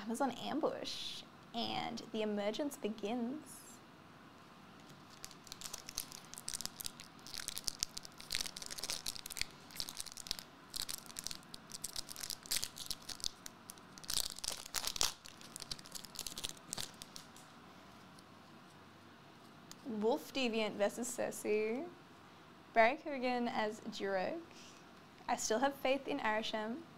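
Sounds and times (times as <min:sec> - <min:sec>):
foil wrapper tearing and crinkling: 0:04.8 - 0:17.5.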